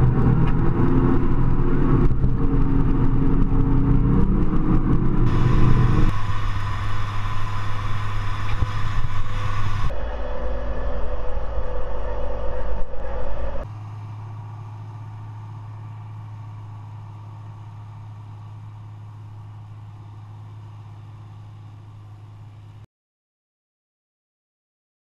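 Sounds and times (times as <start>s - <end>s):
tractor diesel engine ploughing: 0.0s - 9.9s, 13.7s - 22.8s.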